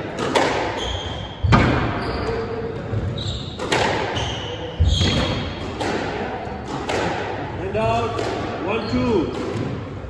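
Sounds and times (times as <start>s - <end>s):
squash ball hits: 0.0s - 10.0s
shoes squeaking on court: 0.8s - 5.5s.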